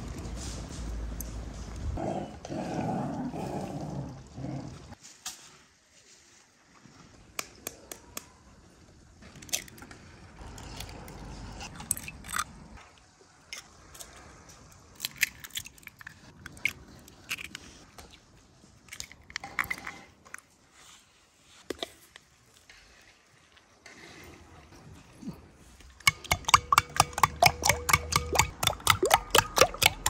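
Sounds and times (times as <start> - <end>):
eggshells cracking: 14.9 - 17.6, 26.1 - 30.0.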